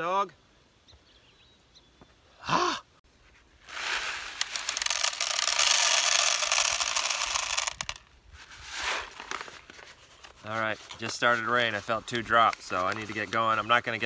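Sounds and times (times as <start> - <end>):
paper packet crinkling: 3.6 - 8.0, 8.6 - 11.2.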